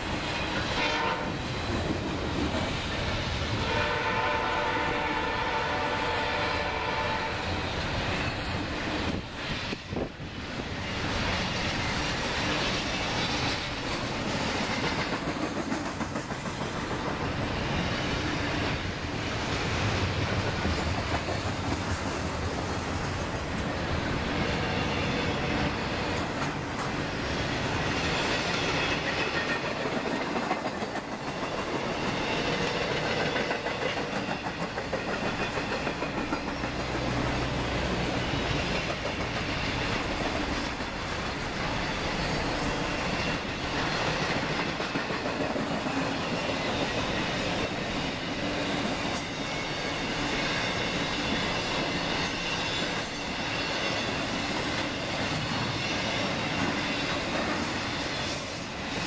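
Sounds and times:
clickety-clack over rail joints: 0.0 - 59.0
freight train wheels on rails: 0.0 - 59.0.

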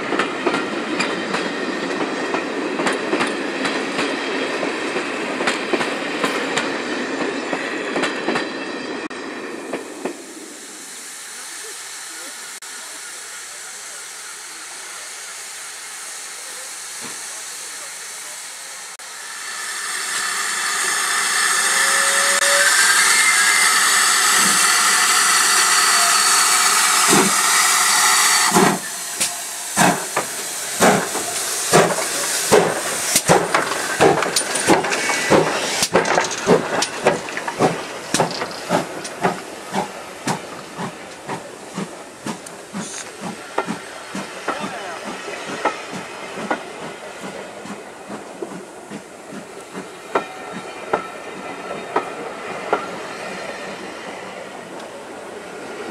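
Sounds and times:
steam hissing: 9.1 - 55.9
steam locomotive exhaust beats: 9.6 - 55.9
train wheels clattering: 23.4 - 54.2.

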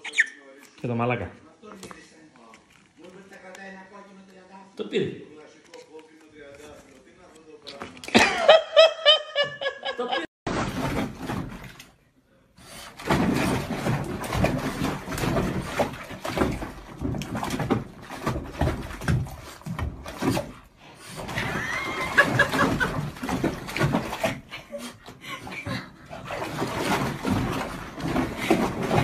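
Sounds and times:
water splashing in bathtub: 10.5 - 29.0.

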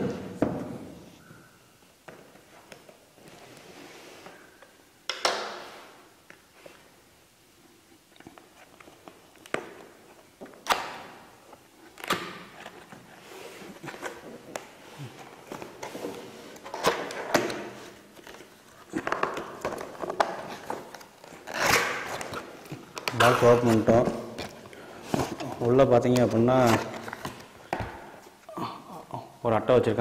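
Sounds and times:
cardboard scraping and rustling: 12.5 - 27.6.

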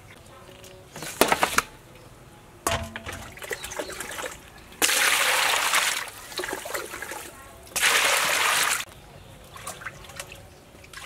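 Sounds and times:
fish slapping into metal basin: 2.7 - 8.8
water gushing into basin: 3.0 - 8.9.

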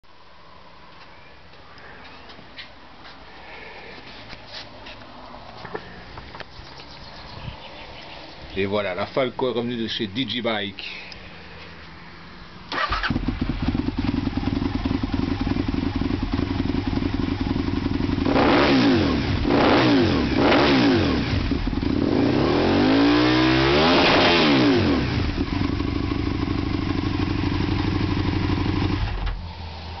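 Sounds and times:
motorcycle engine idling and revving: 12.7 - 30.0.

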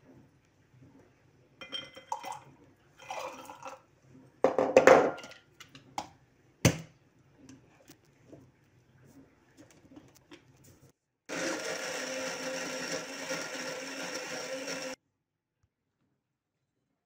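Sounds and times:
blender motor running: 11.3 - 15.0.

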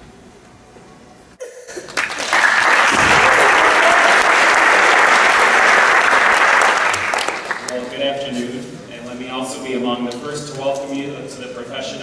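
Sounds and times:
audience applauding: 1.7 - 7.9.

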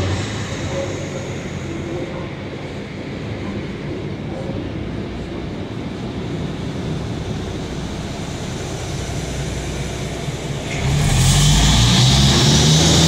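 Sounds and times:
train rumbling past: 0.0 - 13.0
high-pitched squeal: 10.6 - 13.0.

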